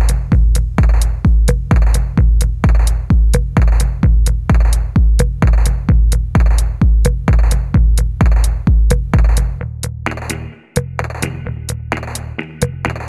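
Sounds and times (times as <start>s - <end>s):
electronic dance music: 0.0s - 3.9s, 10.1s - 13.0s
kick drum: 0.0s - 10.2s
hi-hat clicks: 0.0s - 13.0s.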